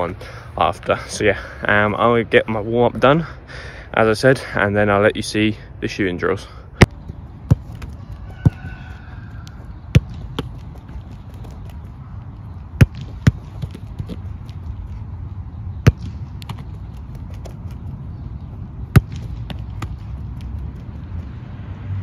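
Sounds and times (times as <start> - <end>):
steady low rumble: 0.0 - 22.0
football smacks: 12.8 - 14.2, 18.9 - 20.5.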